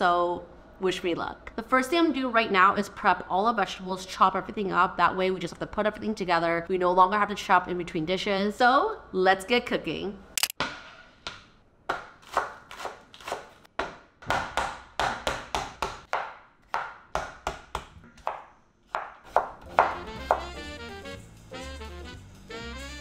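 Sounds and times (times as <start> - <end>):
knife chopping on cutting board: 11.9 - 20.6.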